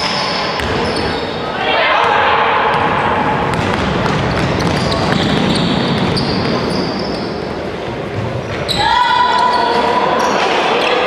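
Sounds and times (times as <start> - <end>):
basketball bouncing on wooden floor: 3.5 - 6.6.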